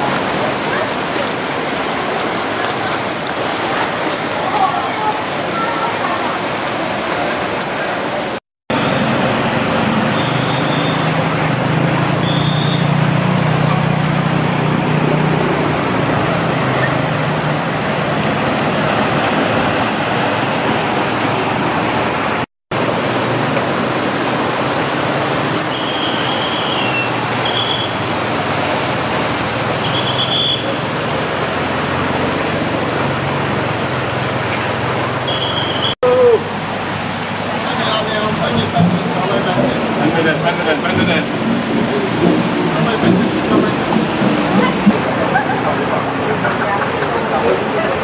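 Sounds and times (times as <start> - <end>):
scooter and car engines: 0.0 - 48.0
water splashing under wheels: 0.0 - 48.0.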